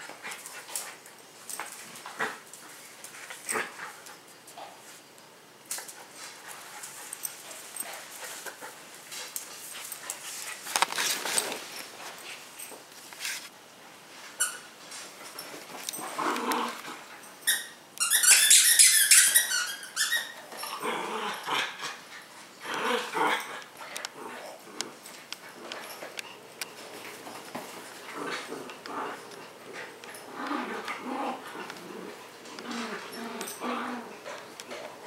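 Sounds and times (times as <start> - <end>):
dogs playing: 0.0 - 35.0
rustling and scuffling: 5.7 - 17.3, 23.7 - 35.0
rapid high-pitched squeaks: 17.5 - 20.5.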